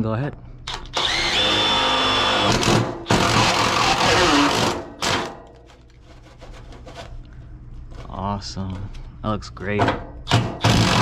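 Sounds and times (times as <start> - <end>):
cordless drill cutting sheet metal: 0.9 - 5.3, 10.3 - 11.0.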